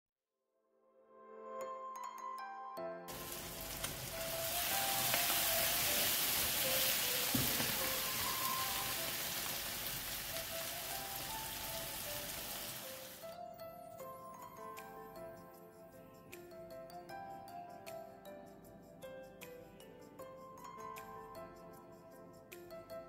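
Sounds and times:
background music: 1.0 - 23.0
sausage sizzling in a frying pan: 3.1 - 13.3.

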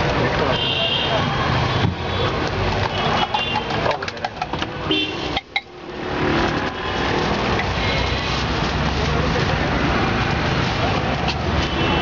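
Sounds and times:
steady traffic noise: 0.0 - 12.0
car horn toot: 4.9 - 5.4.

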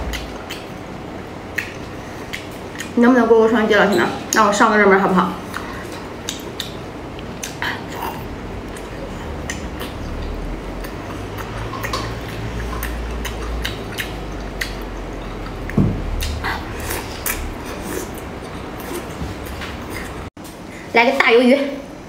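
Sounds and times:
wet chewing and lip smacks: 0.1 - 0.9, 1.5 - 3.0, 5.5 - 19.2.

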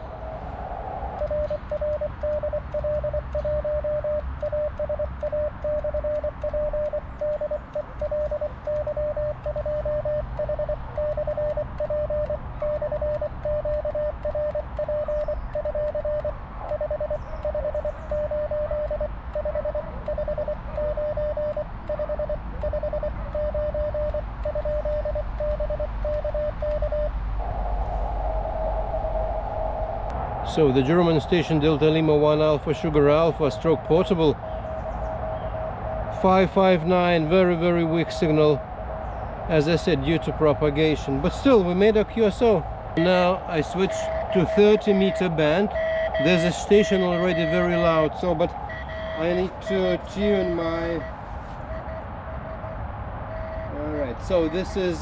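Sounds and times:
morse code tone: 1.2 - 27.2, 42.3 - 54.8.

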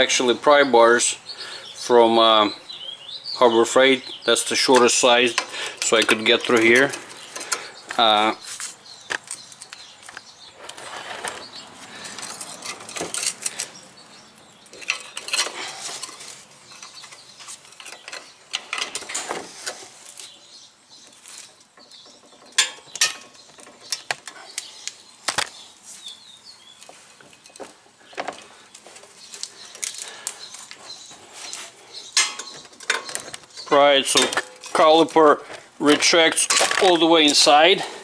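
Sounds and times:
metal scraping: 10.6 - 20.1, 30.4 - 35.2.

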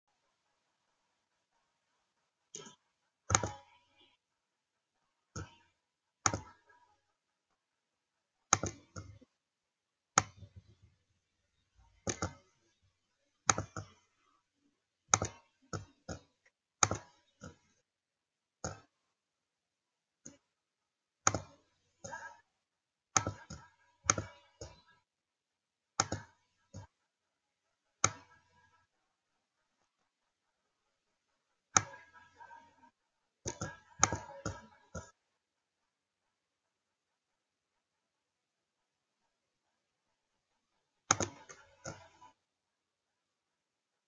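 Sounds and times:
mouse button clicks: 2.6 - 3.7, 8.5 - 9.2, 12.0 - 12.4, 15.1 - 16.2, 23.2 - 24.9, 26.0 - 26.9, 31.7 - 32.7, 33.5 - 35.1, 41.1 - 42.4.

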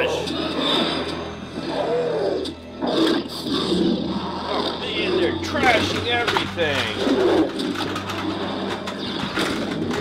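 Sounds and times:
dinosaur roars: 0.0 - 5.4.

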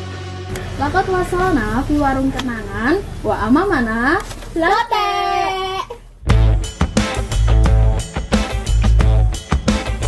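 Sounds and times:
music with deep bass and drums: 6.2 - 10.0.

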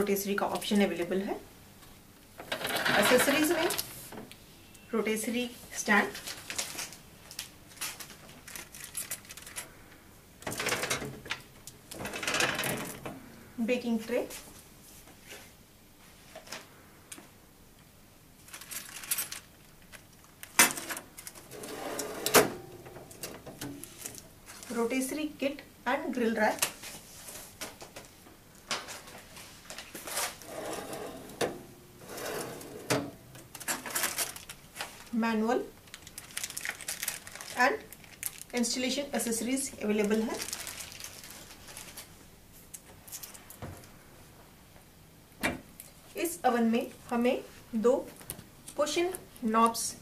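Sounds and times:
soft scraping: 29.4 - 32.9.

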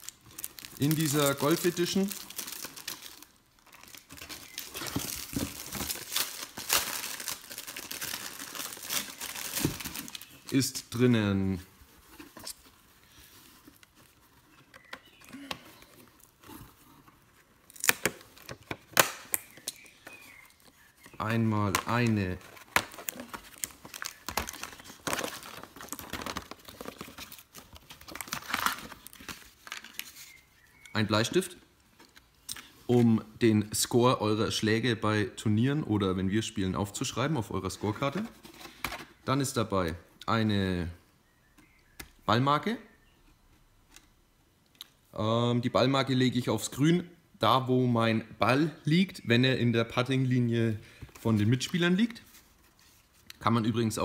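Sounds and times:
packaging rustling and crinkling: 0.0 - 11.0, 11.8 - 30.9.

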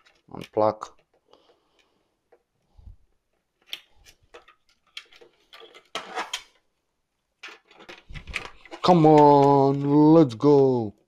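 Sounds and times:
clicks and knocks of handling: 0.0 - 2.5, 3.2 - 6.6, 7.4 - 10.5
rattling and scraping: 3.6 - 6.6, 7.4 - 10.4.

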